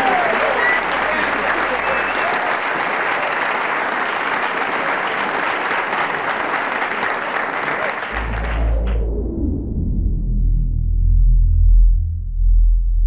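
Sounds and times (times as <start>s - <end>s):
crowd applauding: 0.0s - 9.1s
deep low musical tone: 8.1s - 13.0s.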